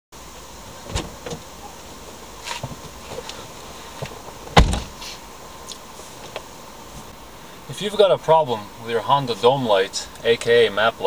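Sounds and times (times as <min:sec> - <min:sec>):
loud thump: 0:04.5 - 0:05.0.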